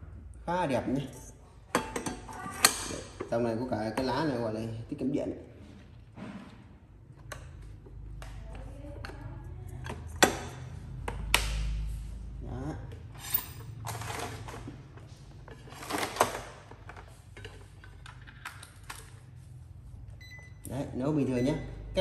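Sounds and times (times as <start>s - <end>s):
plastic clatter: 15.5s - 19.1s.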